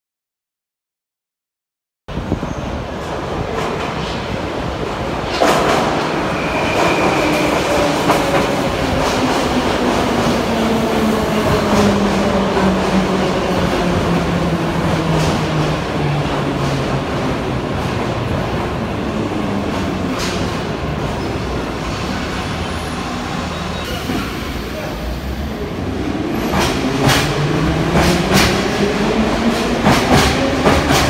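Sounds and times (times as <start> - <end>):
train wheels clattering over rails: 26.3 - 31.0.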